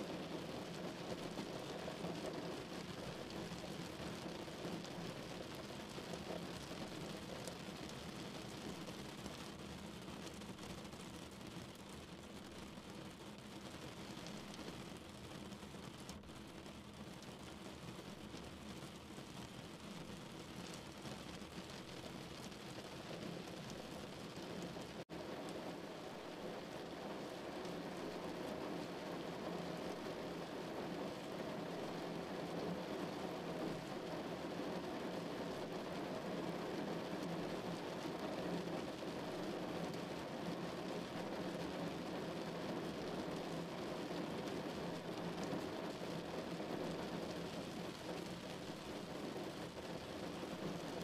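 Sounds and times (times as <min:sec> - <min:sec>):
rain on car windscreen: 0:00.0 - 0:51.0.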